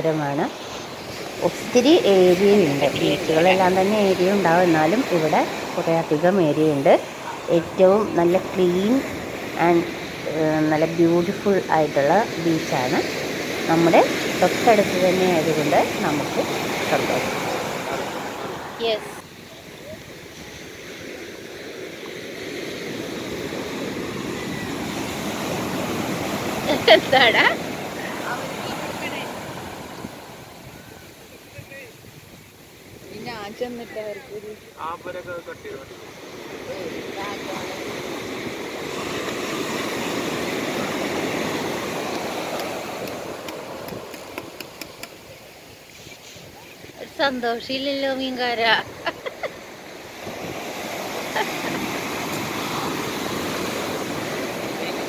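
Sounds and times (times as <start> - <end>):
surf washing on sandy beach: 0.0 - 55.0
faint ticks of receding wave: 42.1 - 45.2.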